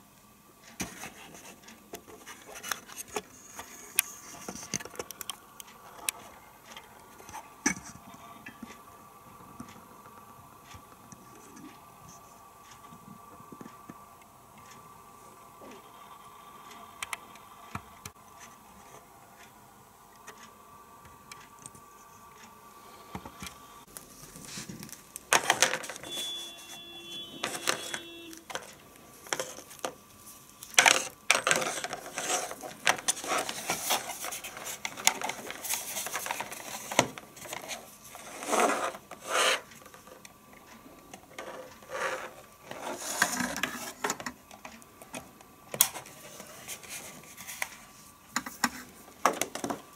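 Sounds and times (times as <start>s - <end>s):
faint hum: 0.0s - 49.9s
cable rubbing and scraping on desk: 30.9s - 39.8s, 41.4s - 44.0s.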